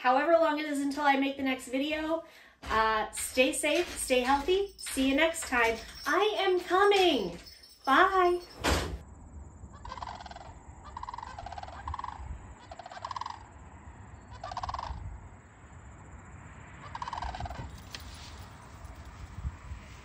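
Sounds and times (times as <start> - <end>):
cranes rattling calls: 9.8 - 13.4, 14.4 - 15.0, 16.8 - 17.8.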